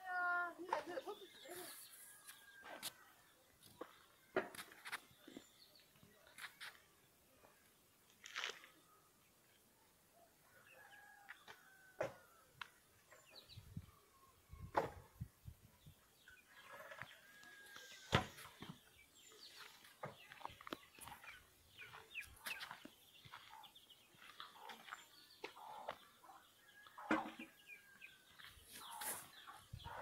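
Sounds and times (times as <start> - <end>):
animal and bird calls: 15.9 - 30.0.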